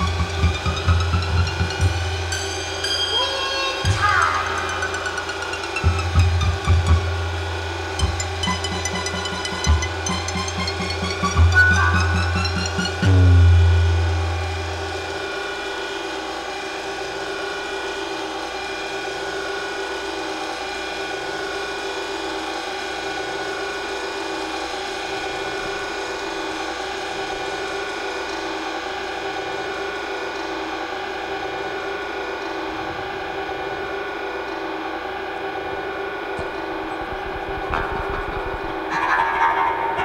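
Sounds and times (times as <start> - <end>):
low bass note: 0.0 - 3.2, 4.0 - 15.8
held droning tones: 0.0 - 40.0.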